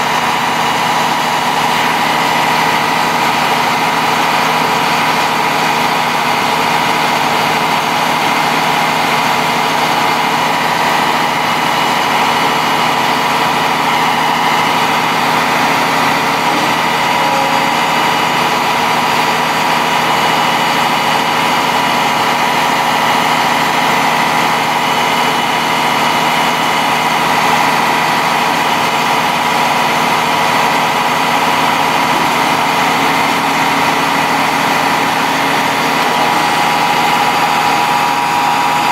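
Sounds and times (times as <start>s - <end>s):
diesel truck engine idling: 0.0s - 38.9s
steady whine: 10.2s - 23.1s.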